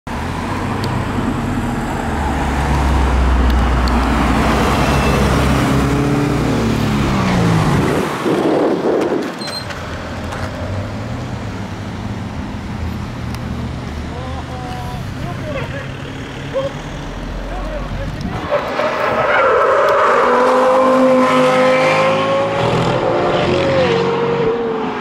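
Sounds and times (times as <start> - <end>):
sports cars driving past: 0.1 - 9.2, 9.8 - 25.0.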